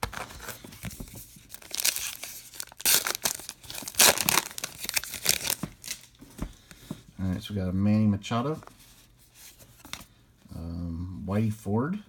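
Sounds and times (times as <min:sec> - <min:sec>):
wrapper tearing and crinkling: 0:01.4 - 0:06.2.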